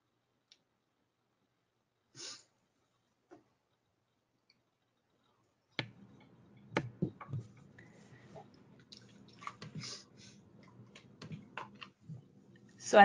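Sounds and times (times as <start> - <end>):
microphone hiss: 4.8 - 13.0.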